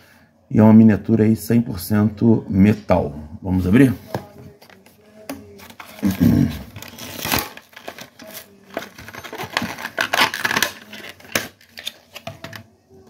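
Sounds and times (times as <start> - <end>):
plastic crinkling: 4.6 - 12.6
packaging clicks: 6.8 - 12.6.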